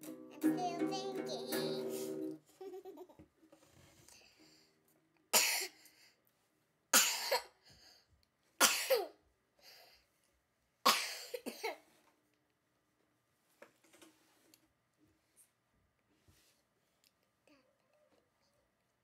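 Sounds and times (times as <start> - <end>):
girl coughing: 5.4 - 5.8, 7.0 - 7.6, 8.6 - 9.2, 10.9 - 11.8.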